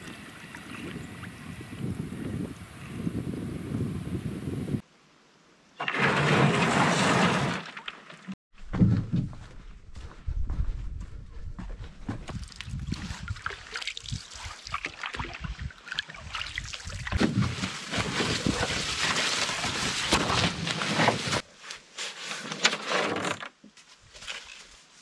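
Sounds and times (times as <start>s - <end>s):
water sloshing around canoe: 12.4s - 19.9s.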